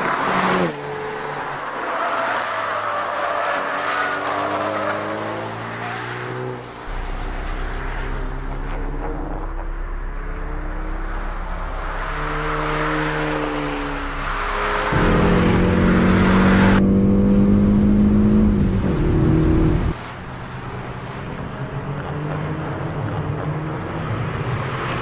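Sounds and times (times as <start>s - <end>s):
race car engines on track: 0.0s - 25.0s
car engine inside cabin: 6.8s - 20.0s.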